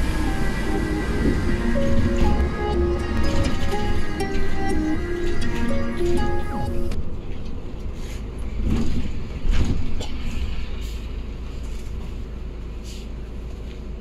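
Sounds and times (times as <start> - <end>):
background music: 0.0 - 7.0
bus engine and road rumble: 0.0 - 14.0.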